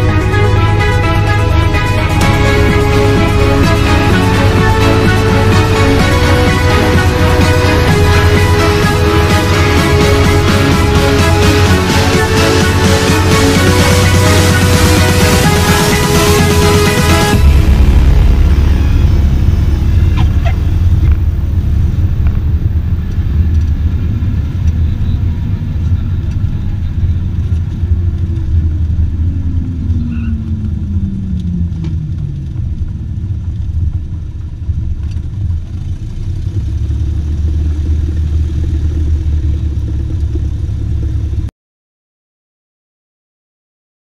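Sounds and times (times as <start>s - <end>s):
tone gliding down in pitch: 0.0s - 23.6s
airplane engine droning: 0.0s - 41.4s.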